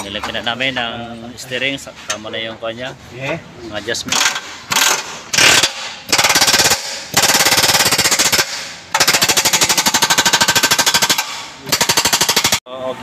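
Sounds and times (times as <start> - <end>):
impact wrench hammering: 4.1 - 12.6.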